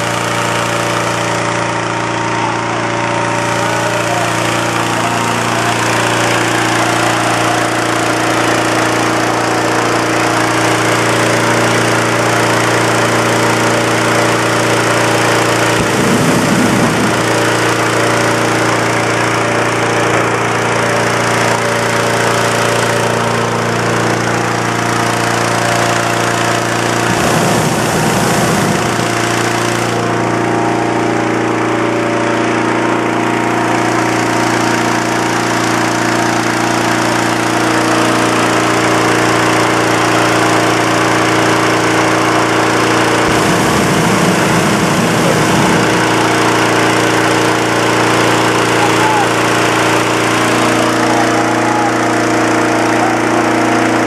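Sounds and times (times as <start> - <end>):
petrol engine running steadily: 0.0 - 54.0
rush of blown air: 15.4 - 18.7, 26.8 - 30.4, 42.6 - 53.5
brief low rumbles: 15.8 - 17.8.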